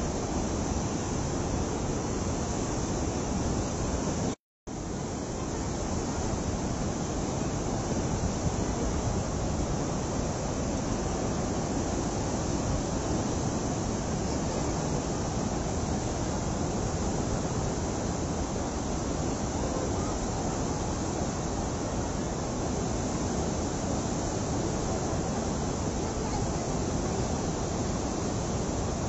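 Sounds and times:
river torrent rushing: 0.0s - 29.0s.

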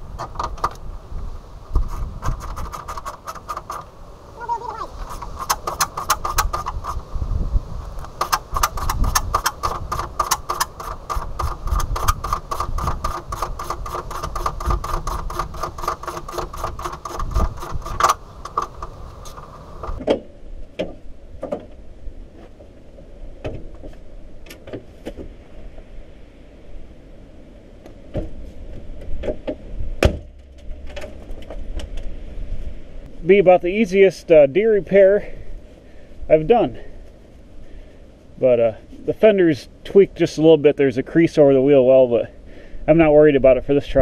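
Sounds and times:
ratchet wrench clicking: 5.1s - 7.0s, 8.0s - 18.9s.

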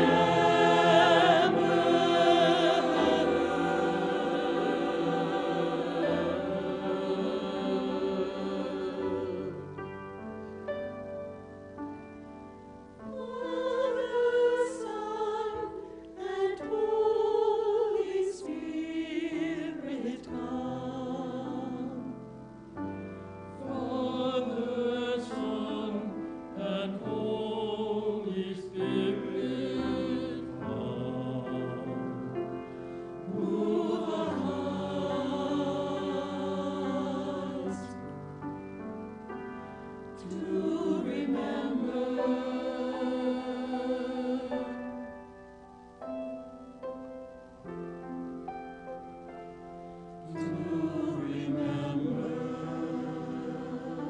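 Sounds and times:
choir singing: 0.0s - 10.8s, 13.0s - 38.6s, 39.5s - 45.1s, 50.0s - 54.0s
singers breathing: 32.7s - 33.2s.

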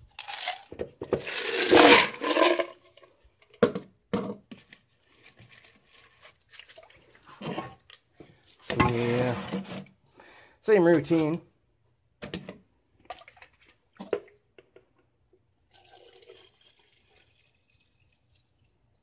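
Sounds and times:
water pouring into plastic bucket: 0.1s - 3.1s, 4.6s - 8.1s, 15.5s - 19.0s
knocks in bucket: 8.7s - 9.3s.

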